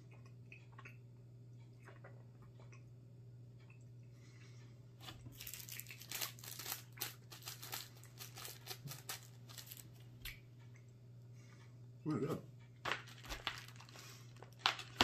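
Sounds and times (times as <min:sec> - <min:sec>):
candy wrapper crinkling: 0:05.3 - 0:10.1, 0:12.9 - 0:15.0.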